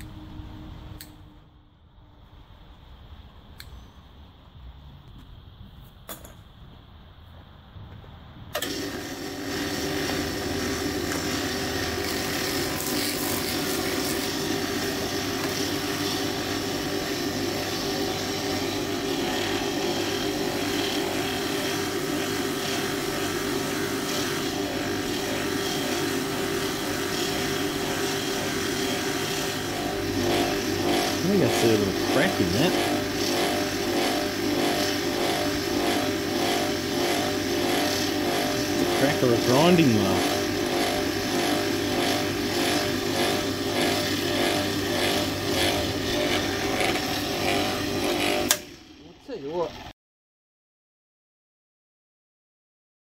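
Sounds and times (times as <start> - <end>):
polishing machine running: 8.6 - 49.9.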